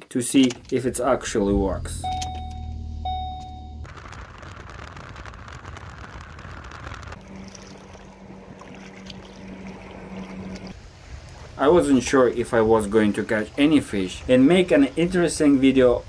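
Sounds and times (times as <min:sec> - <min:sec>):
road noise: 0:00.7 - 0:13.3
low motor hum: 0:01.0 - 0:11.6
short electronic beeps: 0:02.0 - 0:03.9
car engine running: 0:06.1 - 0:10.7.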